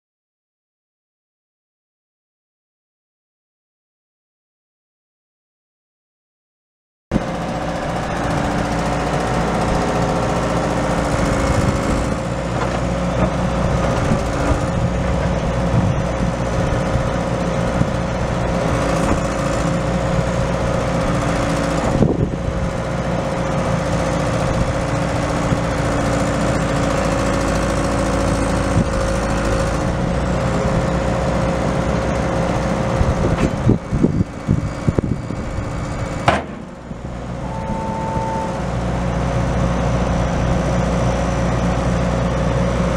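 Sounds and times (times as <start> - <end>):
excavator diesel engine running: 7.1 - 42.9
high whine: 33.6 - 39.5.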